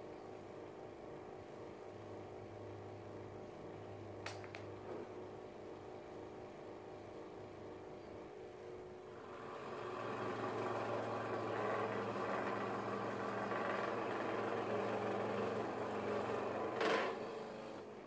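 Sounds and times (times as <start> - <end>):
motor hum: 8.6 - 18.0
scroll saw cutting wood: 9.2 - 17.9.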